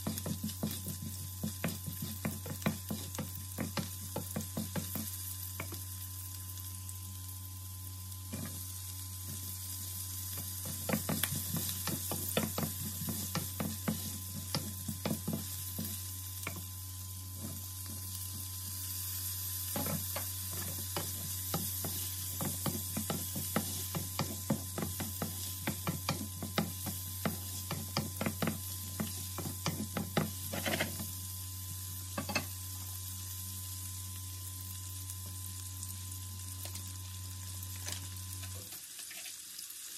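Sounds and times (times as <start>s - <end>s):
vegetables sizzling in oil: 0.0s - 39.9s
spatula scraping frying pan: 19.7s - 31.1s.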